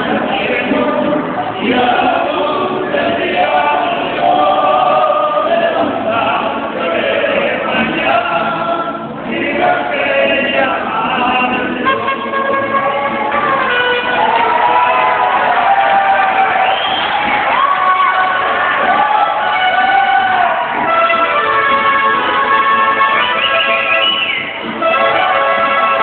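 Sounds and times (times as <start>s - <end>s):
man singing: 0.0s - 13.8s
mariachi band with guitars: 0.0s - 26.0s.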